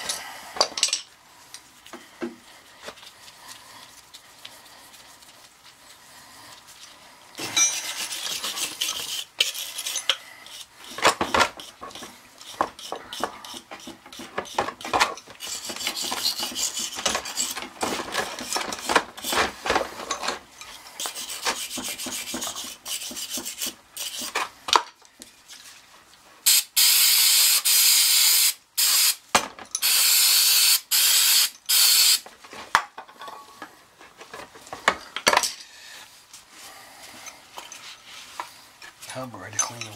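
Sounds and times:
loud steady hissing: 0:26.4 - 0:29.2, 0:29.8 - 0:32.3.

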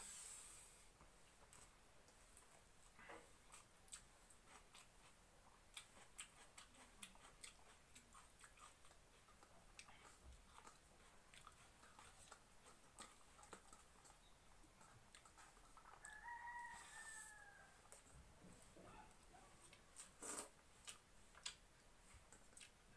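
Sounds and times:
chewing clicks: 0:03.5 - 0:16.3, 0:20.0 - 0:21.6, 0:22.3 - 0:22.8.

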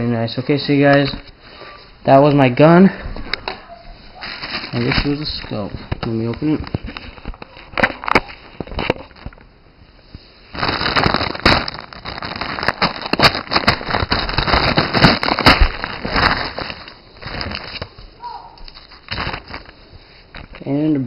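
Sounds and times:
plastic bag crinkling: 0:03.3 - 0:09.4, 0:10.5 - 0:20.8.

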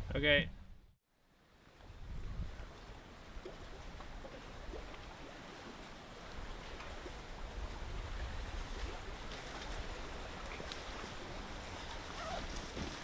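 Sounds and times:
wind buffeting microphone: 0:01.9 - 0:05.3, 0:06.2 - 0:13.0.

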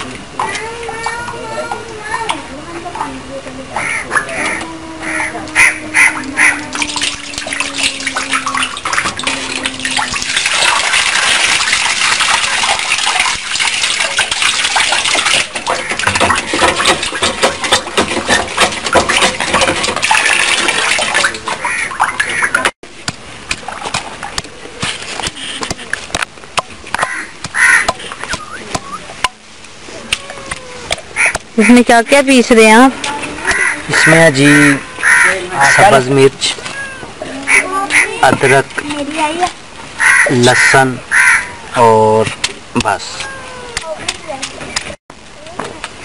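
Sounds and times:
bird cawing: 0:03.8 - 0:07.7, 0:27.0 - 0:29.0, 0:30.4 - 0:31.4, 0:33.4 - 0:36.0, 0:40.0 - 0:41.8
water sloshing in bucket: 0:03.8 - 0:26.1
water rushing out: 0:03.9 - 0:31.6
pestle pounding in clay mortar: 0:14.8 - 0:21.2, 0:23.0 - 0:29.4.

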